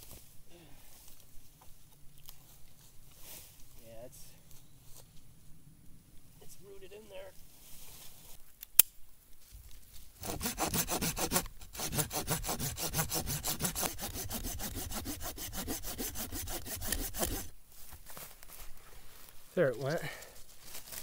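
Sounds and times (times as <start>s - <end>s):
hand saw cutting wood: 10.2s - 17.5s.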